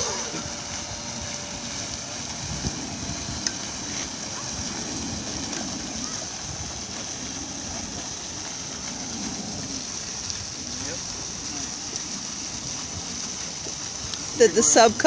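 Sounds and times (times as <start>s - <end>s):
fountain spray splashing: 0.0s - 15.0s
faint voices: 3.6s - 15.0s.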